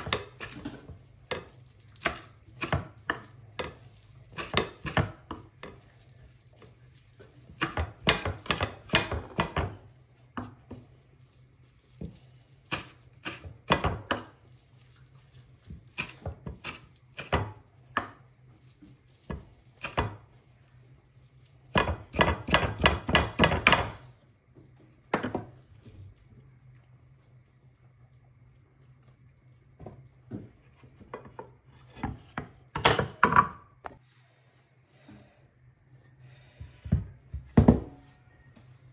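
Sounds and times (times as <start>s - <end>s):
knife chopping on wooden board: 21.7s - 24.0s.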